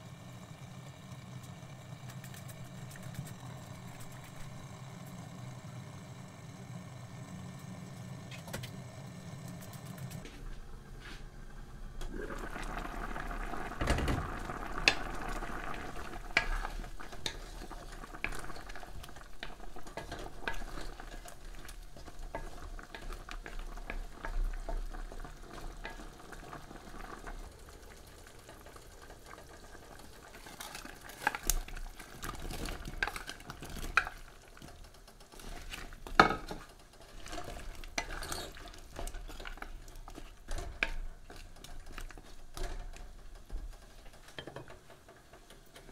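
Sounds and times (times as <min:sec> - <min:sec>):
stew bubbling: 0:12.0 - 0:44.4
spatula scraping and knocking pan: 0:35.4 - 0:45.9.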